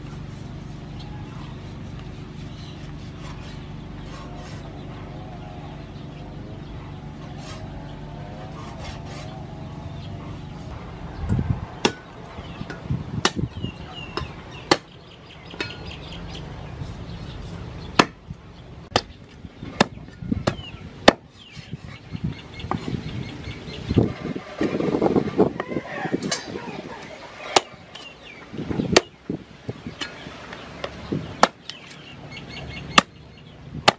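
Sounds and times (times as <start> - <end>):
steady low hum: 0.0 - 25.6
knife chopping on wooden board: 18.0 - 18.2.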